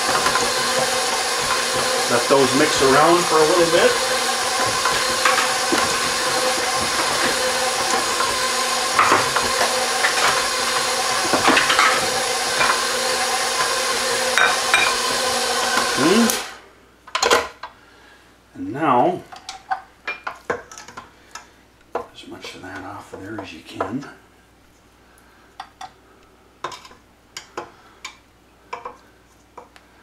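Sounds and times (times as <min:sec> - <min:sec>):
stand mixer running: 0:00.0 - 0:16.6.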